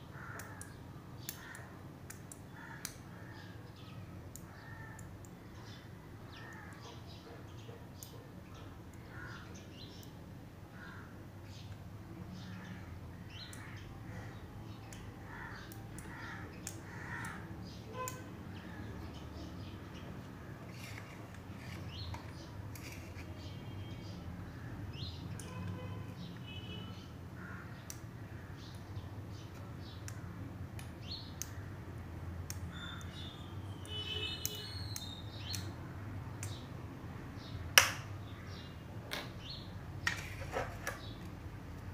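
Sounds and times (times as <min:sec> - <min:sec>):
crows cawing: 0:00.1 - 0:00.8, 0:02.6 - 0:03.6, 0:04.5 - 0:05.1, 0:15.3 - 0:18.1, 0:27.4 - 0:28.4.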